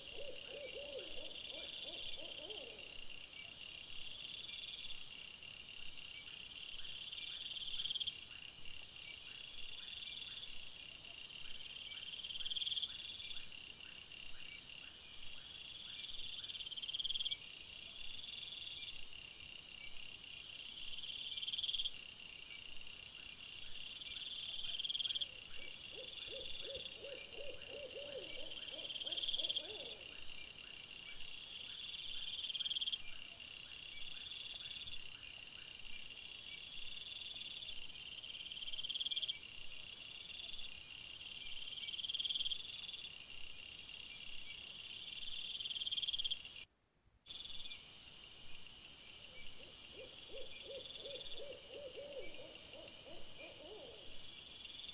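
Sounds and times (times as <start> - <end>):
insects trilling: 47.3 - 54.9.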